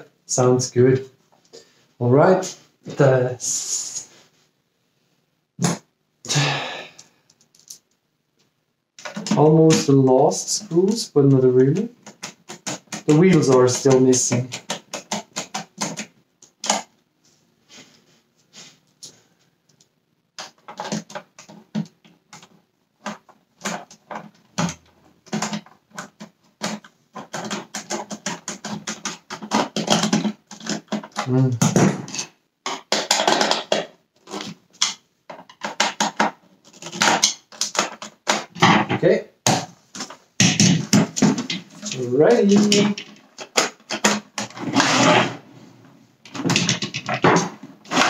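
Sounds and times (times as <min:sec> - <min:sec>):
plastic clicks scrapes and rattles: 0:11.8 - 0:16.9, 0:20.4 - 0:31.4, 0:32.0 - 0:38.7, 0:39.5 - 0:45.3, 0:46.3 - 0:48.0.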